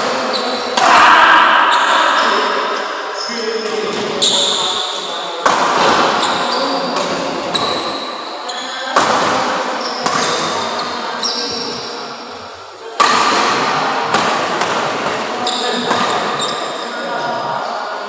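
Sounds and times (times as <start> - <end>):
shoes squeaking on court floor: 0.2 - 0.8, 1.7 - 5.1, 5.9 - 12.6, 15.3 - 17.8
racket hitting shuttlecock: 5.4 - 8.2, 9.0 - 11.9, 13.0 - 16.8.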